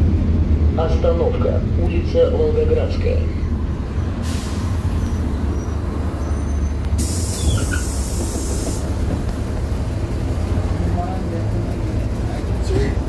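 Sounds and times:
bus engine drone: 0.0s - 13.0s
pneumatic air hiss: 4.2s - 5.0s, 7.0s - 8.8s.

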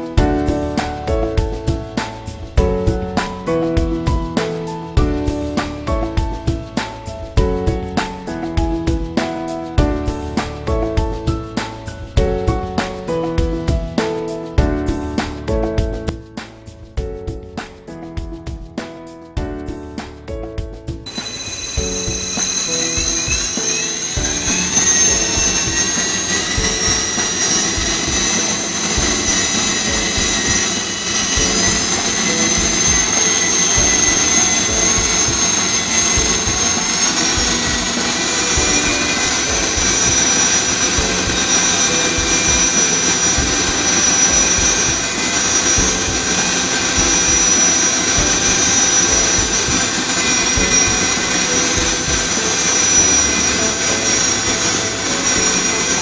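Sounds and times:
drill spindle whining: 21.1s - 56.0s
low pulsing of drilling strokes: 21.1s - 56.0s.

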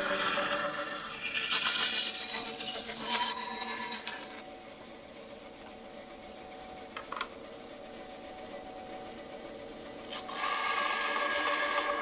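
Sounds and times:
bandsaw running: 0.0s - 4.3s, 10.1s - 12.0s
bandsaw cutting wood: 10.2s - 12.0s.

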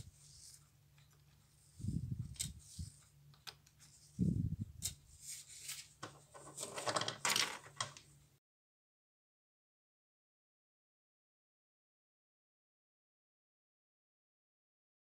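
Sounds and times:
clatter and rustle: 6.0s - 8.0s.

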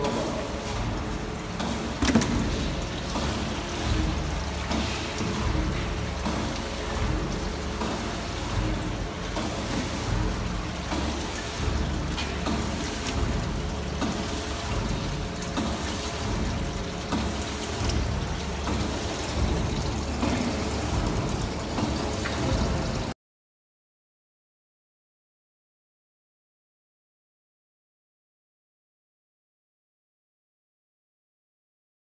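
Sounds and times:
pulsing machine noise: 0.0s - 23.1s
liquid pouring and trickling: 0.0s - 23.2s.

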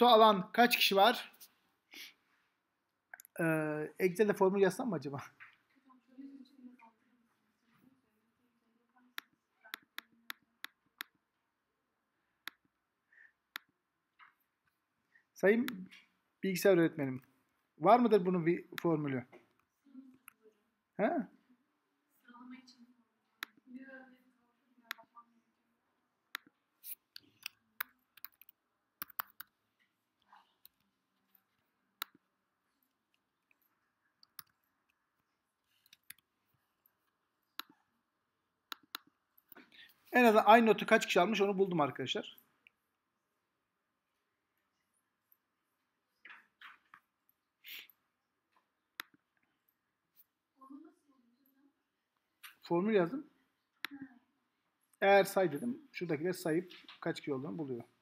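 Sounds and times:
computer mouse clicks: 26.3s - 29.6s, 33.1s - 37.8s, 38.7s - 39.6s.

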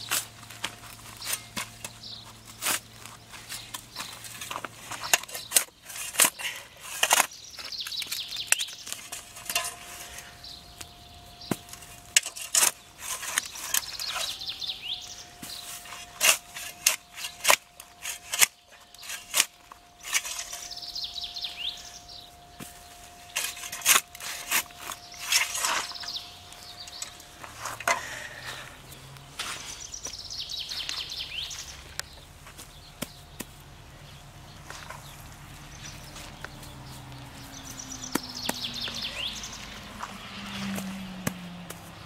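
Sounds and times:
birds singing faintly: 0.0s - 42.0s.

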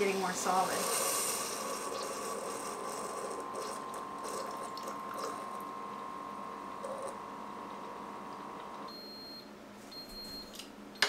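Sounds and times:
coffee hissing into mug: 0.6s - 5.5s.

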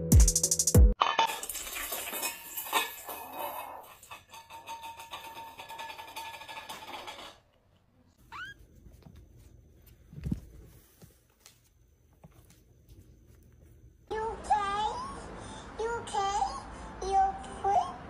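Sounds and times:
steel bowl rattling on floor: 1.0s - 7.5s.

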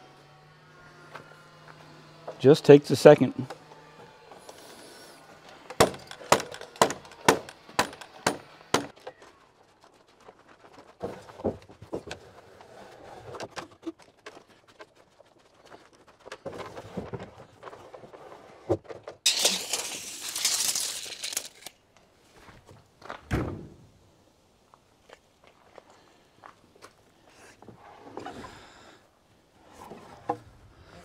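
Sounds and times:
nail gun firing: 5.7s - 8.9s
lumber knocking: 5.8s - 8.9s.

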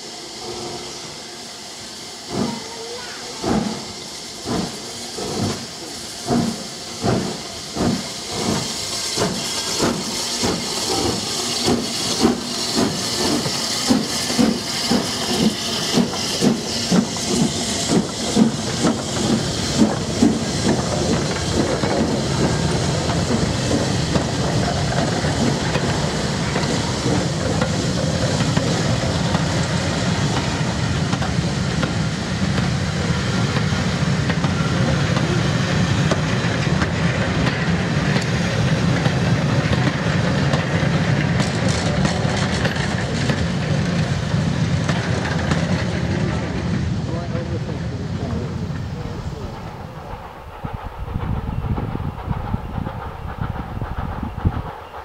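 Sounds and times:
steam hiss: 0.0s - 55.0s
steam locomotive exhaust beats: 0.0s - 55.0s
train coaches rumbling and clattering: 0.0s - 55.0s.

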